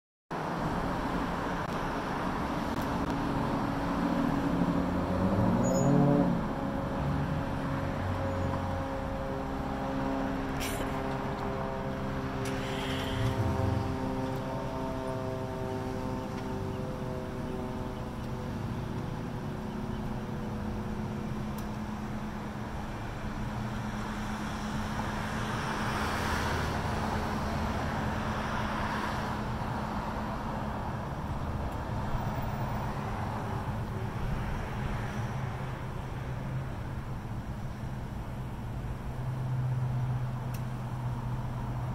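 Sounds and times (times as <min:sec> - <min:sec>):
cars passing: 0:00.3 - 0:41.9
low hum of traffic engines: 0:00.3 - 0:41.9
car engine passing by: 0:02.7 - 0:08.7, 0:09.3 - 0:17.2, 0:23.8 - 0:30.4
car driving past: 0:12.2 - 0:17.2.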